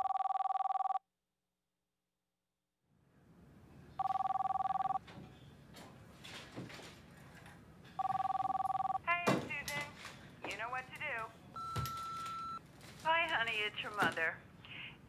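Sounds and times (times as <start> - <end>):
two-tone electronic telephone ring: 0.0 - 1.0, 4.0 - 5.0, 8.0 - 9.0, 11.6 - 12.6
faint room noise: 2.9 - 15.0.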